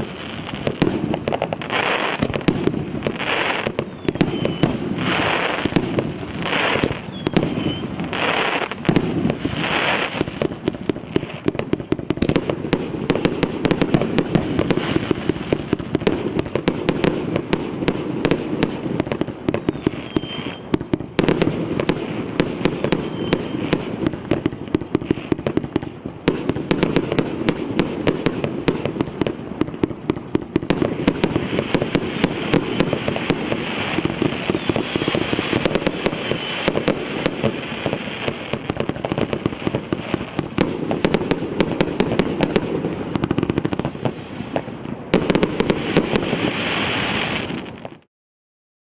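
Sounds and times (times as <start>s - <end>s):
firework hissing rushes: 0.0s - 11.6s, 30.6s - 47.8s
firework barrage: 0.0s - 48.1s.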